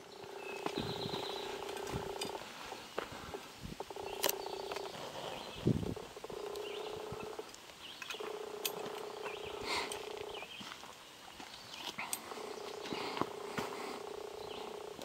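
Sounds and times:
rattlesnake rattling: 0.0s - 10.4s
sharp clicks: 3.4s - 5.0s, 5.8s - 10.4s.

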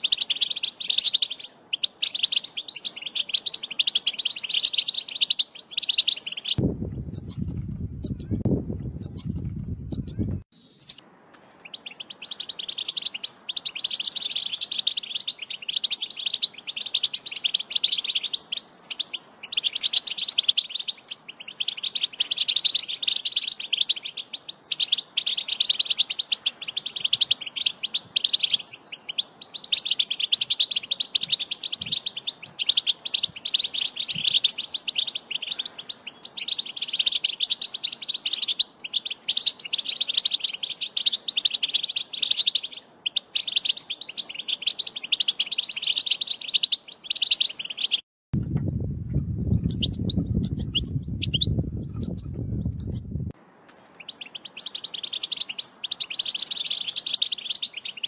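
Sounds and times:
loud low rumble: 6.6s - 10.4s
goldfinches twittering: 9.9s - 48.0s, 53.6s - 58.0s.

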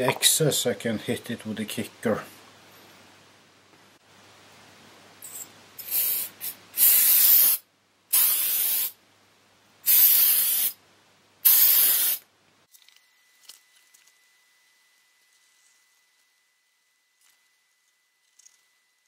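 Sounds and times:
aerosol spray hissing: 5.8s - 9.0s, 9.8s - 10.8s, 11.4s - 12.2s.

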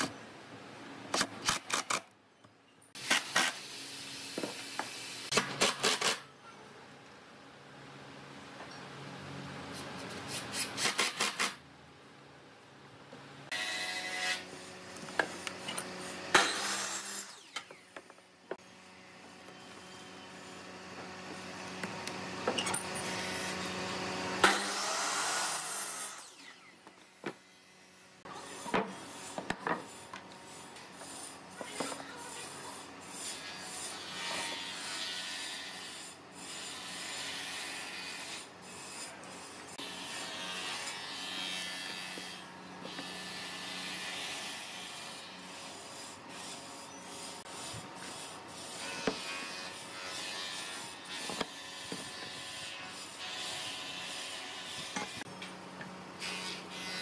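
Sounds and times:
saw blade cutting wood: 13.5s - 18.0s, 22.5s - 26.7s, 28.3s - 55.3s, 56.2s - 57.0s.

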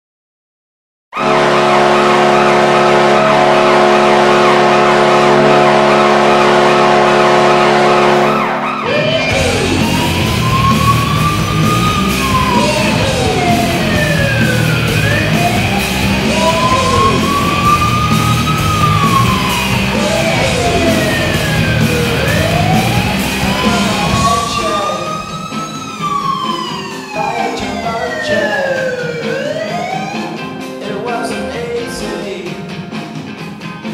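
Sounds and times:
hockey goal horn: 1.2s - 25.4s
siren wailing: 1.2s - 31.7s
rock music: 1.2s - 33.9s.

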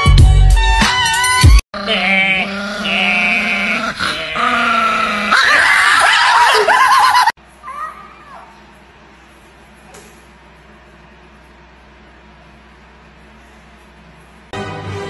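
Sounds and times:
dog howling: 1.8s - 6.8s
man howling: 1.8s - 7.2s.

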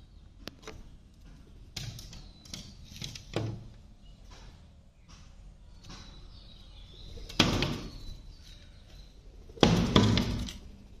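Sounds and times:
woodpecker pecking window glass: 1.5s - 3.8s, 9.5s - 10.8s.

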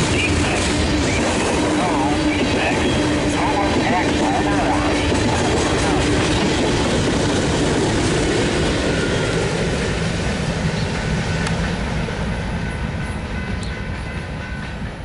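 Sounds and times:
freight train rumbling over rails: 0.0s - 15.0s
locomotive engine hum: 0.0s - 15.0s.

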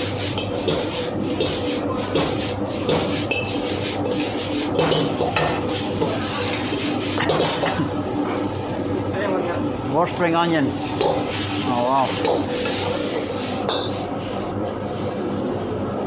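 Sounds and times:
metal ladle scraping a wok: 0.0s - 7.2s, 11.0s - 15.2s.

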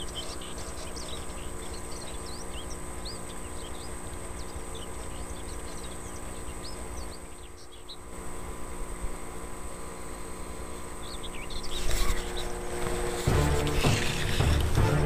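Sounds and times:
small birds chirping: 0.0s - 14.8s
faint hum: 0.0s - 15.0s.

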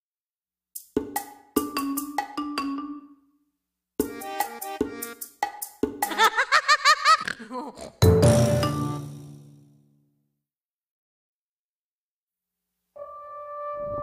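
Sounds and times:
staccato music notes: 0.8s - 3.0s, 4.0s - 6.5s, 7.2s - 9.6s.

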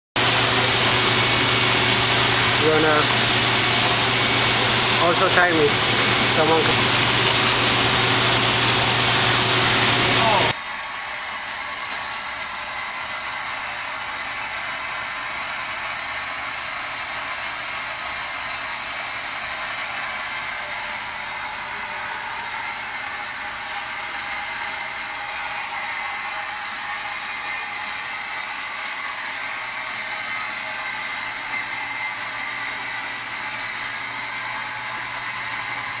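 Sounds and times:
abrasive air jet hissing: 9.5s - 10.6s.

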